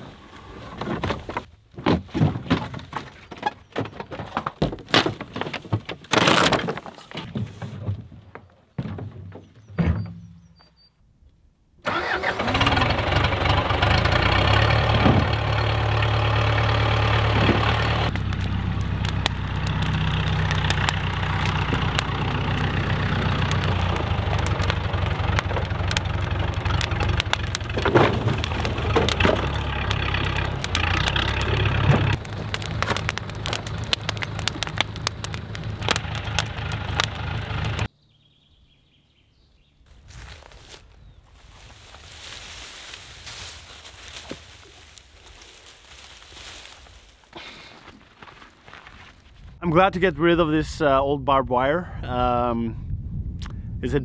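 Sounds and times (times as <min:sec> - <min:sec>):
tractor engine running: 0:11.8 - 0:37.9
bonfire crackling: 0:11.9 - 0:37.9, 0:40.0 - 0:49.7.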